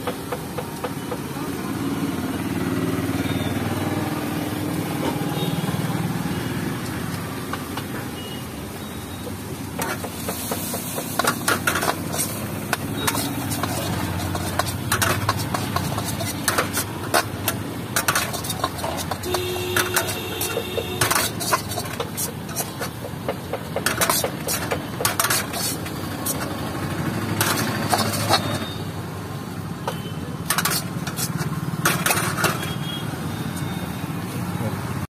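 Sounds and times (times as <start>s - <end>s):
metal ladle scraping a wok: 9.7s - 23.1s, 23.8s - 28.8s, 29.9s - 32.9s.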